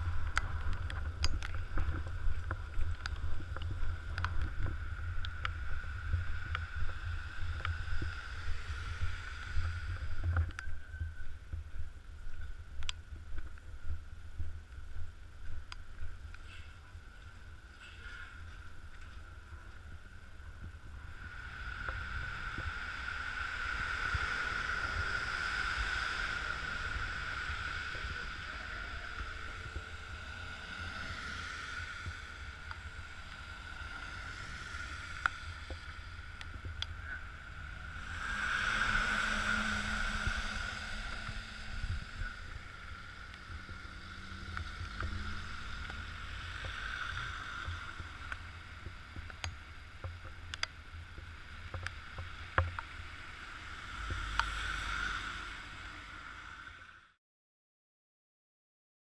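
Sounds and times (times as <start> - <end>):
wind rumble on microphone: 0.0 - 56.9
high-pitched whine: 0.0 - 57.2
tyre hiss on wet road: 4.9 - 10.3, 21.0 - 49.2, 51.2 - 57.0.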